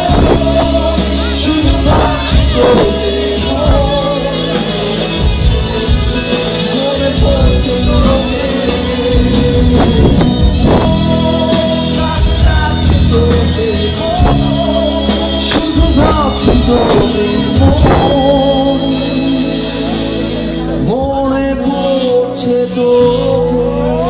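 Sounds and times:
bass guitar: 0.0 - 24.0
drums: 0.0 - 24.0
electric guitars: 0.0 - 24.0
lead vocal singing: 0.0 - 24.0.

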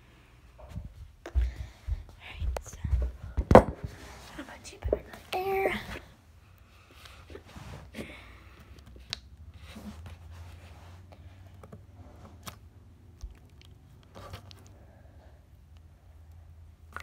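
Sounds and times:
slime squishing: 11.3 - 15.0.

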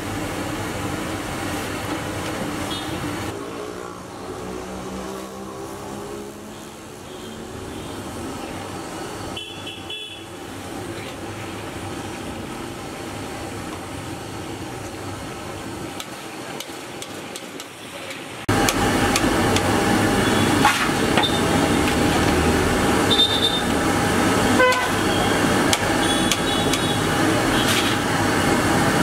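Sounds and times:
vehicle horn toot: 2.7 - 3.0, 9.3 - 10.3, 23.0 - 23.8, 24.5 - 27.9.

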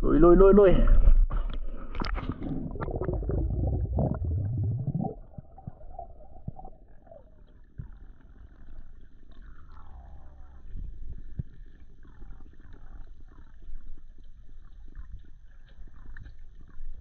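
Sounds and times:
muffled underwater sound: 0.5 - 17.0
splashing and bubbling: 1.7 - 8.6
faint gliding tones: 2.2 - 10.7.

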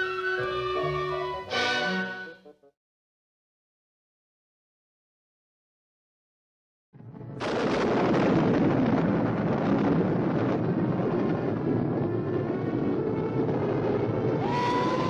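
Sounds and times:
cartoon soundtrack music: 0.0 - 2.7.

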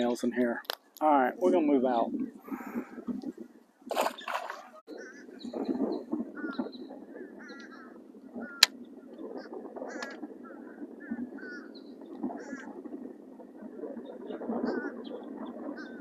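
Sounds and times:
waterfowl quacking: 4.1 - 5.6, 6.3 - 12.8, 14.3 - 16.0.

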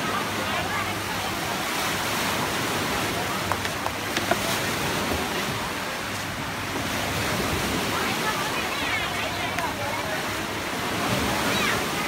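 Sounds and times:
sea surf: 0.0 - 12.0
wind: 0.0 - 12.0.

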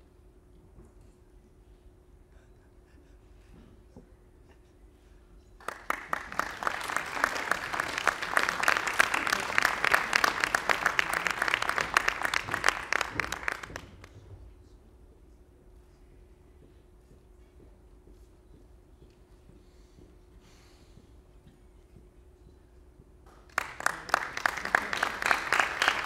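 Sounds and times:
audience applauding: 5.6 - 14.1, 23.5 - 26.0.

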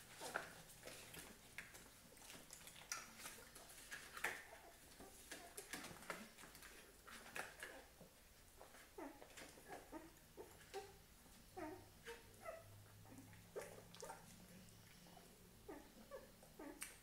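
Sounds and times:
puppies suckling: 0.1 - 11.0, 11.6 - 17.0
puppies whimpering: 11.6 - 17.0.

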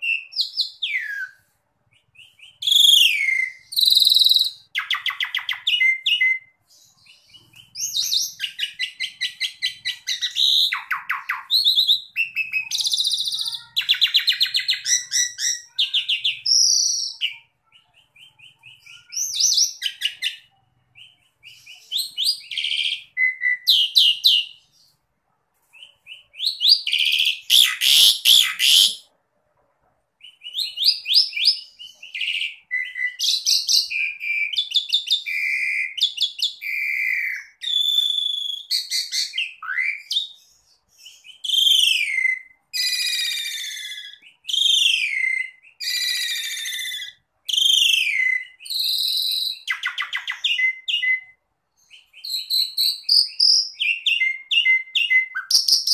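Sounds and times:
starling singing: 0.0 - 25.0, 25.8 - 29.1, 30.2 - 55.9
harsh squawk: 26.9 - 29.1.

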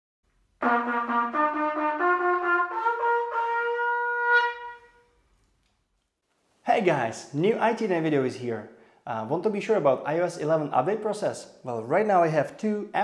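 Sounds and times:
trumpet fanfare: 0.6 - 5.0.

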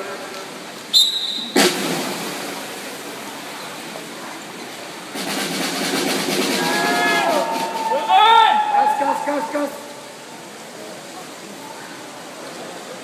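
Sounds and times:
swimmers splashing: 0.9 - 4.1, 5.2 - 10.4.

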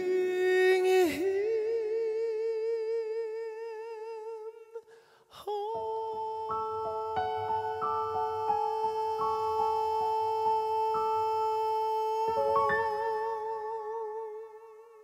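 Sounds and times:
breath: 4.8 - 5.4
man singing high note: 5.4 - 15.0
piano notes: 5.7 - 13.9.

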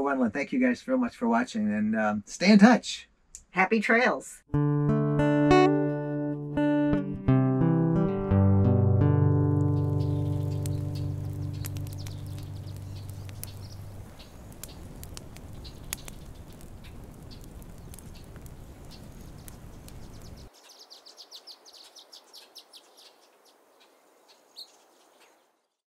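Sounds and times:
outro music: 4.5 - 13.5
campfire crackling and popping: 9.0 - 20.6
rapid high chirping: 9.7 - 23.2.

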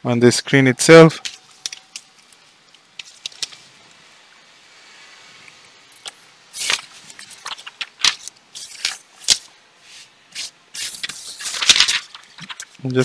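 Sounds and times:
paper sheets sliding and rustling: 6.5 - 13.0.

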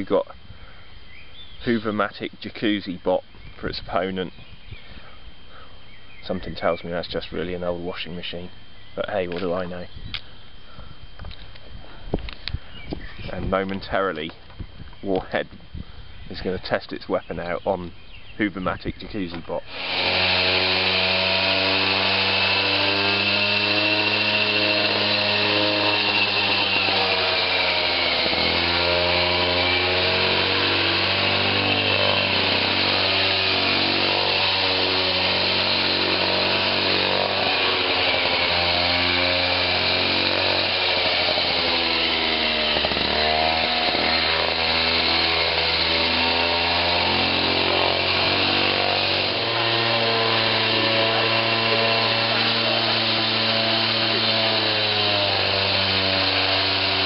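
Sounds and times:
distorted buzzy synth chords: 19.6 - 46.8.

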